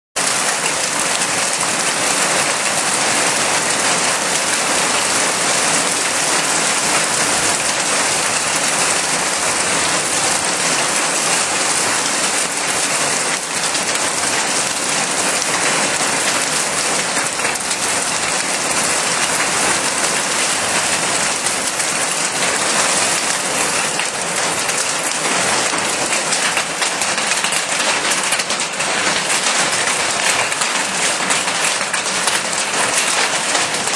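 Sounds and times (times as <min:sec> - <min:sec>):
hail clattering on ground: 0:00.2 - 0:33.9.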